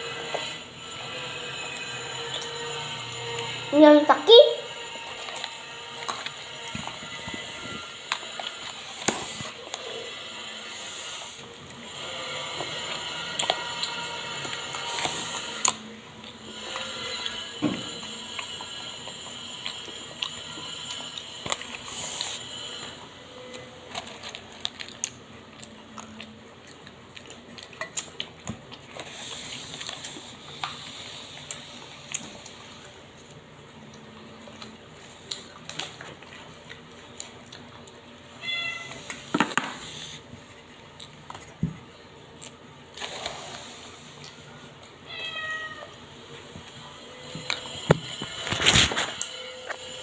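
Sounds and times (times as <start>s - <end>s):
cat meowing: 38.4s - 39.1s, 45.1s - 46.0s.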